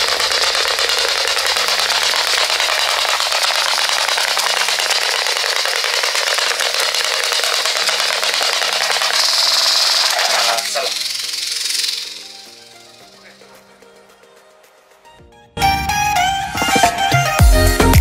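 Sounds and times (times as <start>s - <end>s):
toy motor rattling whir: 0.0s - 14.0s.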